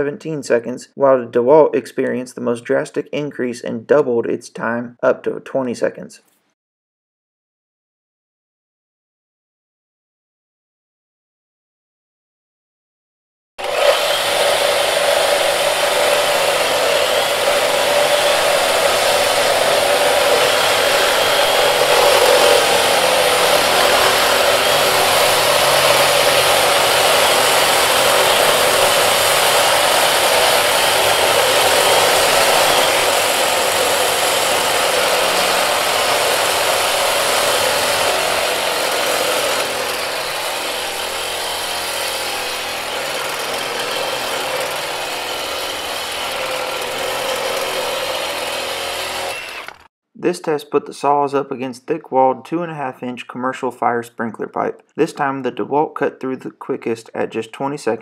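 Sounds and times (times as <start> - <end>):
reciprocating saws cutting steel pipe: 13.6 - 49.9.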